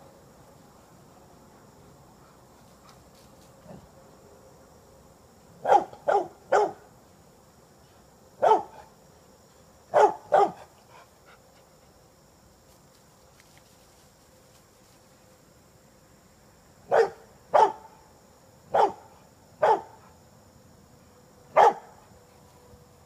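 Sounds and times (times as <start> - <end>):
dog barking: 5.6 - 6.8, 8.4 - 8.8, 9.9 - 10.7, 16.9 - 17.9, 18.7 - 20.0, 21.6 - 21.9.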